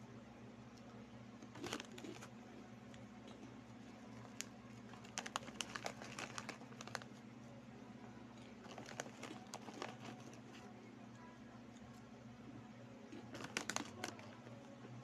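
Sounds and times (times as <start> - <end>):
low steady hum: 0.0 - 15.0
plastic snack bag crinkling: 1.4 - 2.4, 3.3 - 7.2, 8.4 - 10.7, 13.1 - 14.5
crunchy snacks being chewed: 1.4 - 7.2, 8.4 - 10.6, 13.1 - 14.4.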